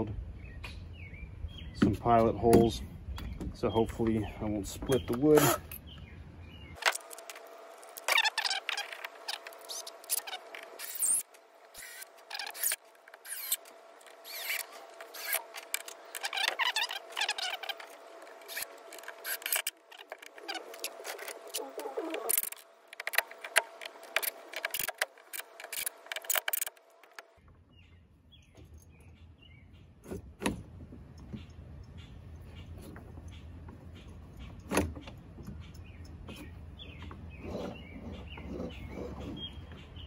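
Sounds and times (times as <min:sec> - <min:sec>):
clicks scrapes and squeaks of handwork: 0:04.8 - 0:05.9, 0:06.8 - 0:27.5, 0:31.2 - 0:40.0
cordless drill-driver: 0:11.8 - 0:13.6, 0:14.2 - 0:17.8.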